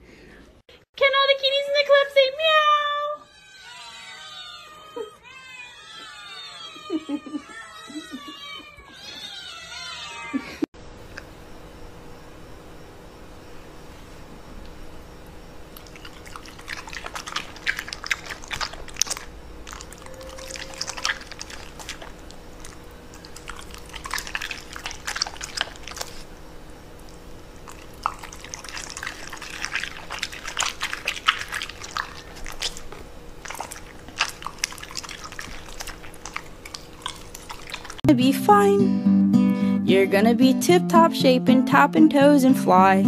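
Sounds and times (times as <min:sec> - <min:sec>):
dog crunching vegetables: 0:15.7 - 0:38.1.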